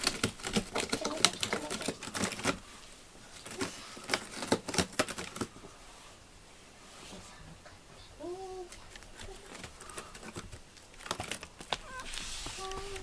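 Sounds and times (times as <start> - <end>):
cat claws scratching cardboard: 0.0 - 2.7, 3.4 - 5.5, 8.9 - 13.0.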